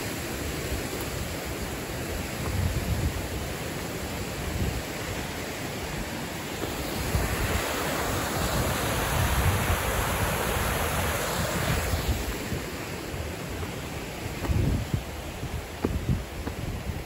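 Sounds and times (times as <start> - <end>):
stream rushing over rocks: 0.0 - 17.0
wind buffeting microphone: 2.0 - 3.5, 6.6 - 17.0.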